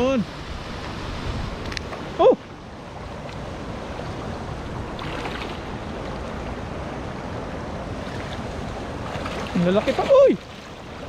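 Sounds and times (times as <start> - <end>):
wind on microphone: 0.0 - 11.0.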